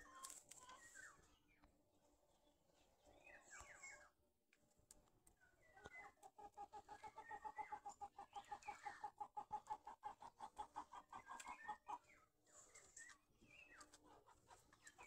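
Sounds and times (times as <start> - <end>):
chickens clucking: 5.6 - 15.0.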